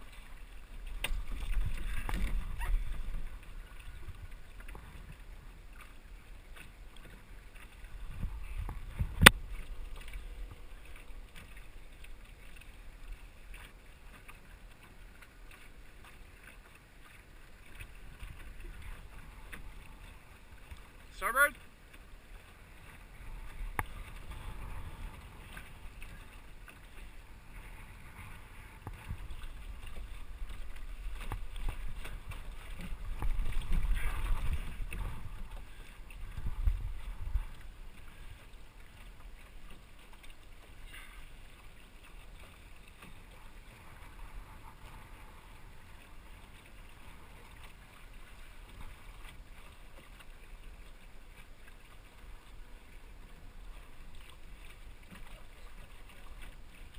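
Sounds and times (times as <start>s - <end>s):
water washing along boat hull: 0.0s - 56.9s
wind buffeting microphone: 7.9s - 10.7s, 27.2s - 37.7s.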